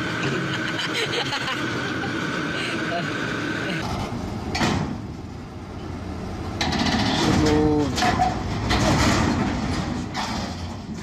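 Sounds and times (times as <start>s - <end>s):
diesel engine running: 0.0s - 11.0s
excavator tracks clanking: 6.6s - 11.0s.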